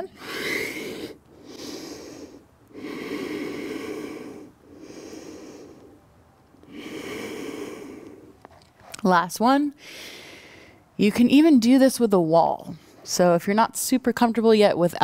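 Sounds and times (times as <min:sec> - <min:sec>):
woman breathing deeply: 0:00.0 - 0:08.4, 0:09.8 - 0:10.9.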